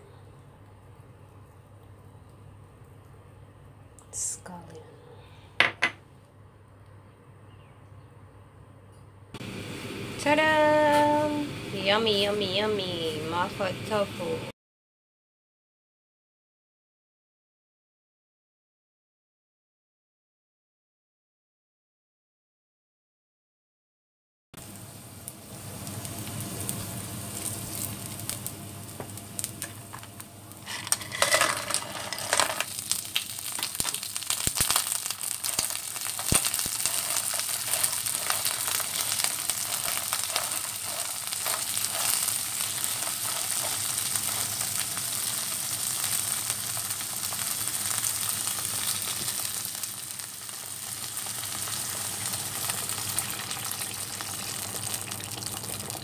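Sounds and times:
sizzling in hot oil: 24.6 - 56.0
clam shells clattering in pan: 30.6 - 44.5.

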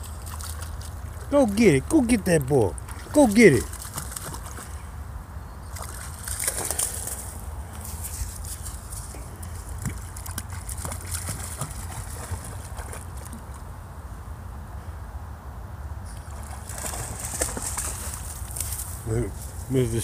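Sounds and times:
dog splashing through water: 0.0 - 4.7, 5.7 - 13.6, 16.2 - 19.0.

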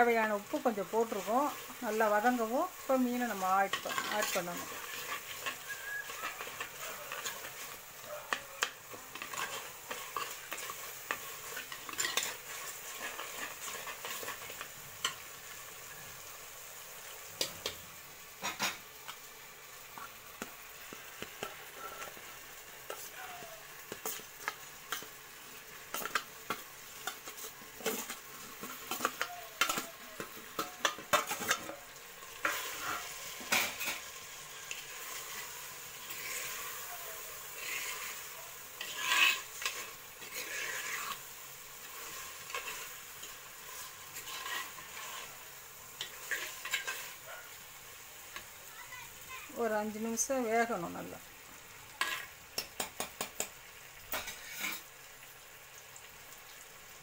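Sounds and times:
oil sizzling: 0.0 - 57.0
ladle scraping in clay pot: 3.6 - 7.7, 8.9 - 14.6, 38.8 - 41.2, 43.7 - 45.4.

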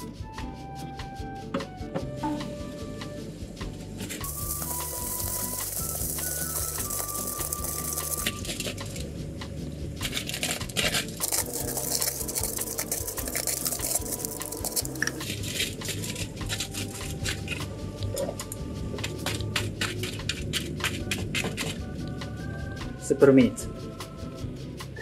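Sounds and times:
aluminium foil crinkling: 4.0 - 9.1, 10.0 - 17.7.

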